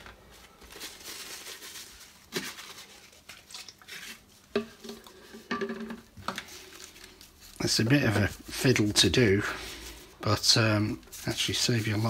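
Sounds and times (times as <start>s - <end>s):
handling and rustling: 0.0s - 12.0s
headphones knocking on basin: 5.4s - 6.1s.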